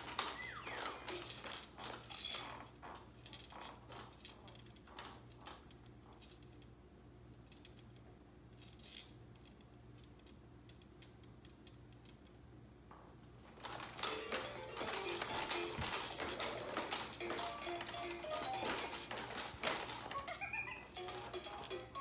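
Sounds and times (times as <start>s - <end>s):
plastic clatter: 0.0s - 6.4s, 13.5s - 22.0s
plastic toy clicks and rattles: 0.0s - 6.7s, 13.6s - 22.0s.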